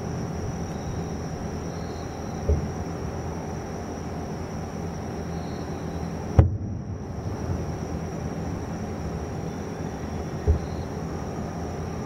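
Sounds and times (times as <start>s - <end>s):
background traffic rumble: 0.0s - 12.0s
distant firework boom: 6.4s - 7.7s, 10.4s - 10.8s.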